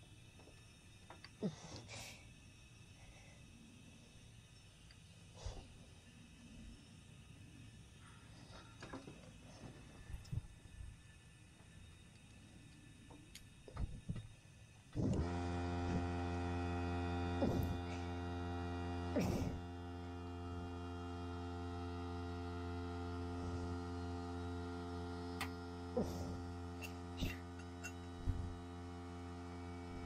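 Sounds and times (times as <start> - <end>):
electric machine hum with tones: 0.0 - 30.0.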